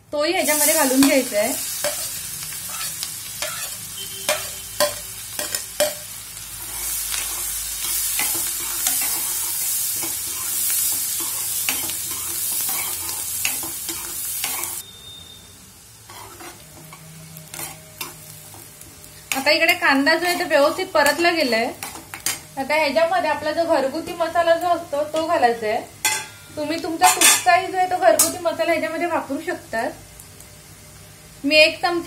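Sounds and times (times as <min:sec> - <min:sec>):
onion sizzling in oil: 0:00.1 - 0:32.0
spatula scraping a pan: 0:00.6 - 0:06.0, 0:06.6 - 0:14.8, 0:16.1 - 0:21.2, 0:27.0 - 0:27.5.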